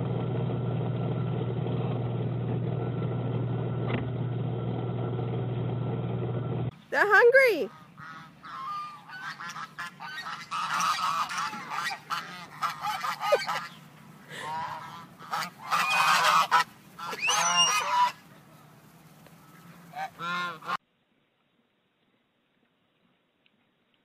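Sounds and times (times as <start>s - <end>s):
geese honking: 6.9s - 20.8s.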